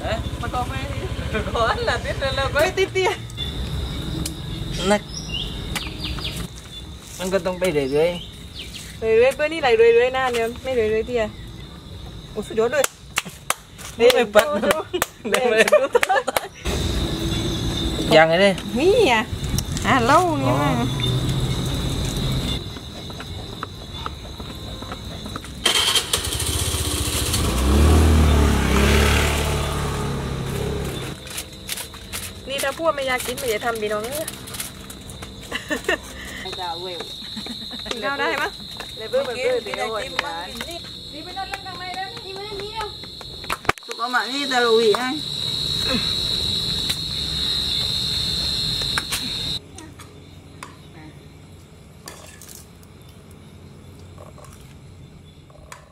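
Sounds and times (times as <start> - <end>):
vehicle engine passing by: 0.0 - 6.5, 16.7 - 22.6, 25.6 - 31.3
crickets trilling: 0.0 - 55.9.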